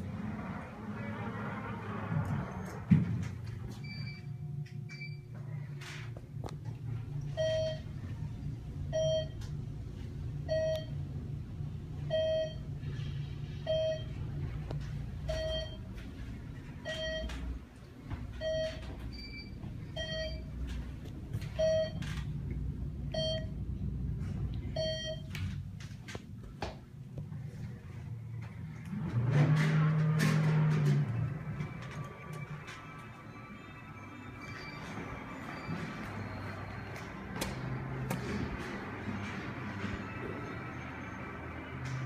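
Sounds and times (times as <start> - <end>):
elevator car humming: 0.0 - 42.0
elevator floor beeps: 3.5 - 5.9, 7.0 - 8.2, 8.8 - 9.6, 10.4 - 11.2, 11.9 - 13.0, 13.6 - 14.4, 15.2 - 16.0, 16.8 - 22.3, 23.1 - 23.6, 24.7 - 25.6, 31.0 - 42.0.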